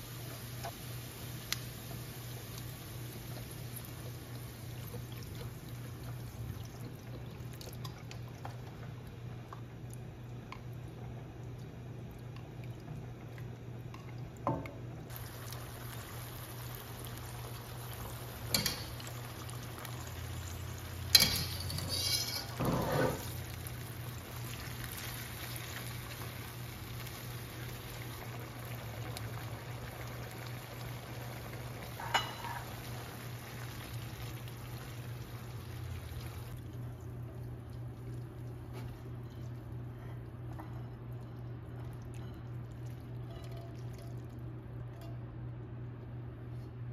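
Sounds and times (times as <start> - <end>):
stock simmering in a pan: 0.0 - 44.8
clinks and wet splashes: 40.5 - 45.2.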